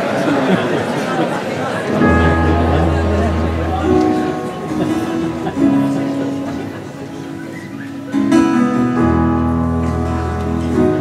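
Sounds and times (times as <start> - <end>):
acoustic guitar strumming chords: 1.9 - 11.0.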